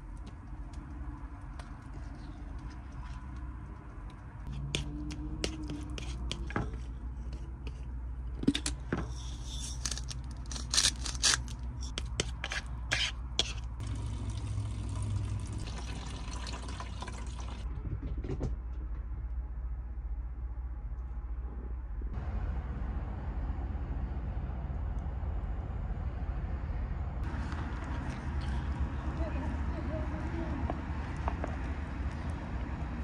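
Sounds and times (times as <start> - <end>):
low hum: 18.6 - 33.0.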